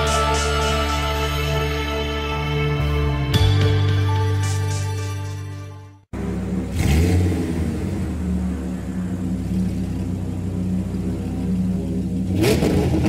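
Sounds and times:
engine revving: 6.1 - 13.0.

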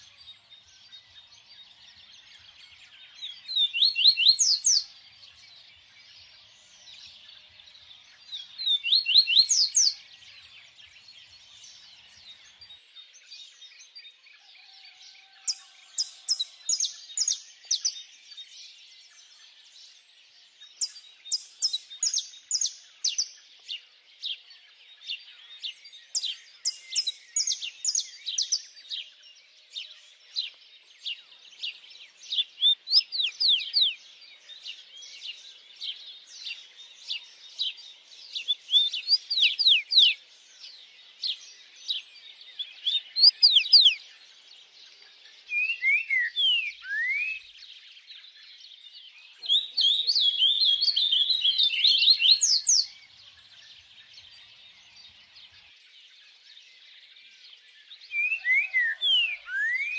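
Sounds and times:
chorus of birds chirping: 0.0 - 59.9
bird whistling sharp notes: 45.5 - 47.5, 58.1 - 59.9.

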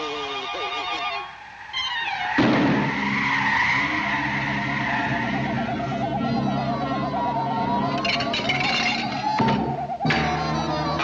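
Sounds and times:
cartoon whirlwind howling: 0.0 - 11.0
orchestral underscore: 2.9 - 11.0.

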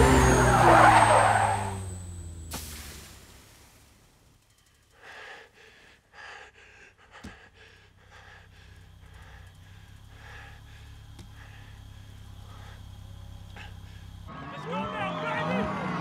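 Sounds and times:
low steady hum: 2.0 - 14.3
man breathing hard: 4.8 - 14.3.

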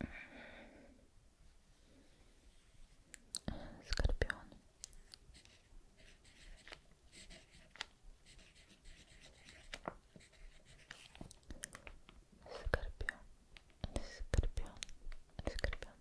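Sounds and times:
pen scratching on paper: 5.3 - 11.1.

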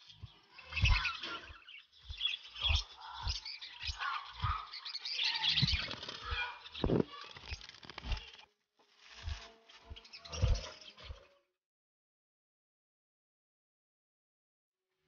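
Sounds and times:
budgies chirping: 0.0 - 8.5, 9.1 - 11.5
rustling: 5.8 - 10.8.

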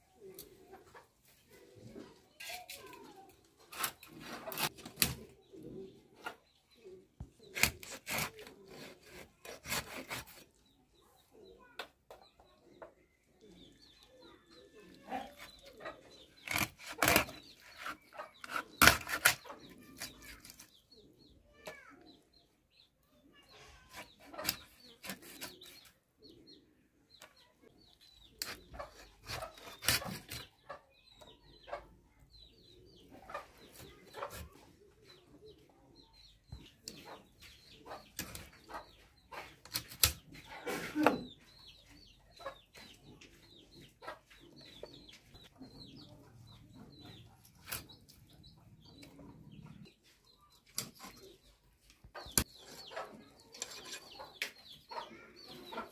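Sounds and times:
chickens clucking: 0.0 - 55.9
blade cutting chicken bones: 7.5 - 10.4, 16.4 - 20.7, 24.0 - 25.8, 28.4 - 30.4.

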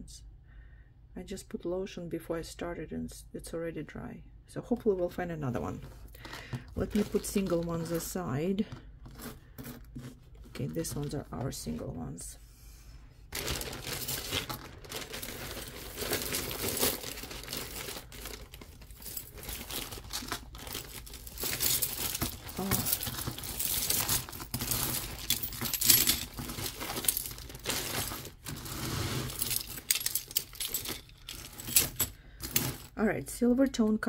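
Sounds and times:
plastic crinkling: 13.3 - 32.9
metal jewelry clinking: 13.4 - 33.0.

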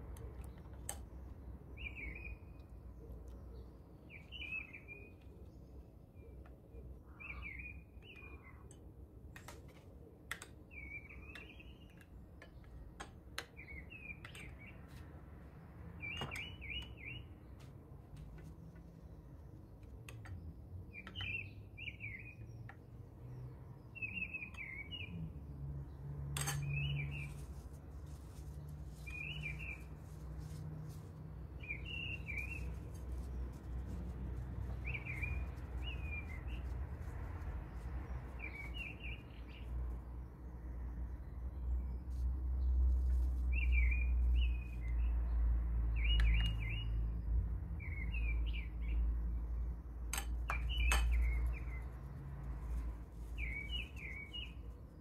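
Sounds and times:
small bird chirping: 1.8 - 8.8, 16.0 - 17.6, 18.4 - 49.6, 50.4 - 55.0.

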